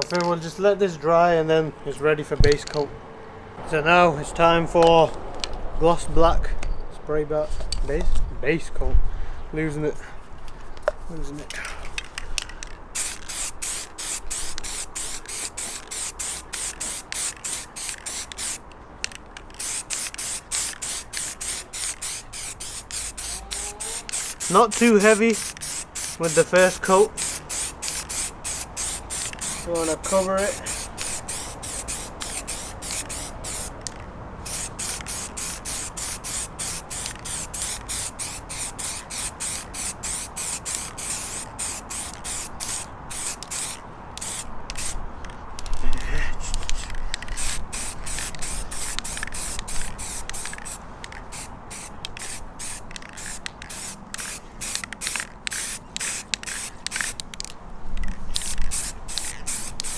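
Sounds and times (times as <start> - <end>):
aerosol spray can hissing: 13.0 - 18.6, 19.6 - 33.8, 34.4 - 45.0, 47.3 - 57.2, 58.4 - 59.9.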